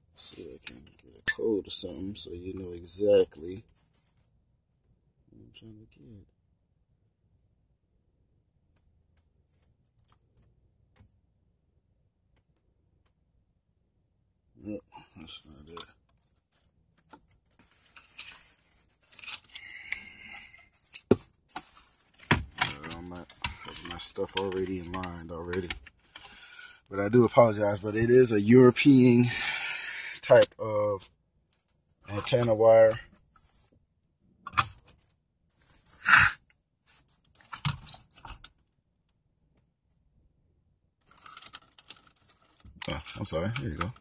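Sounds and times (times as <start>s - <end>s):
wiring rustling: 15.6s - 26.5s, 41.0s - 44.0s.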